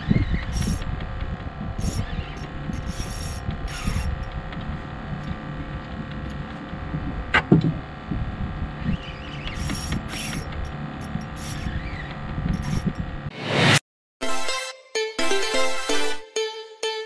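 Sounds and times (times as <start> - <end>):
short high-pitched buzzes: 0.0 - 0.9, 1.8 - 4.3
fishing reel clicking and whirring: 0.0 - 4.6, 8.9 - 13.0
wind rumble on microphone: 0.0 - 13.3
rising squeak: 1.8 - 4.3, 8.8 - 13.8.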